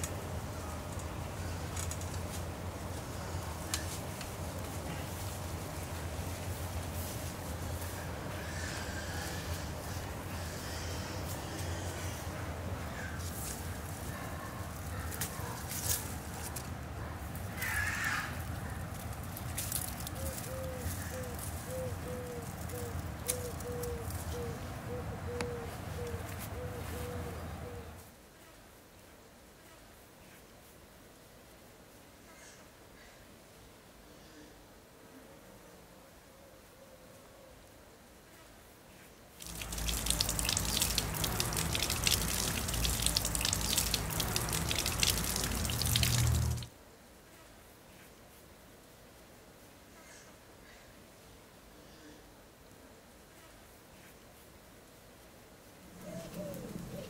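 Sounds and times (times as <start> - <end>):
bird hooting: 20.2 - 28.0, 56.0 - 57.0
food sizzling and crackling: 39.4 - 46.7.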